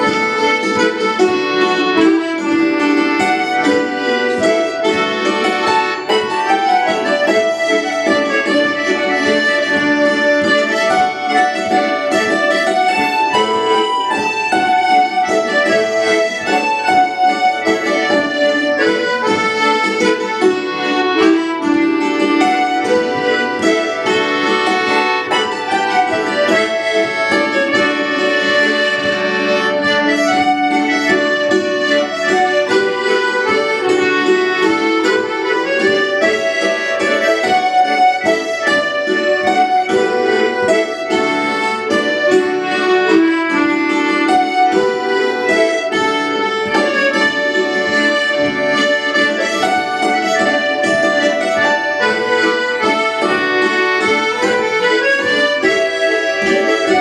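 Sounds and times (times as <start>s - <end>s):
fiddle: 0.0s - 57.0s
hammered dulcimer: 0.0s - 57.0s
mandolin: 0.0s - 57.0s.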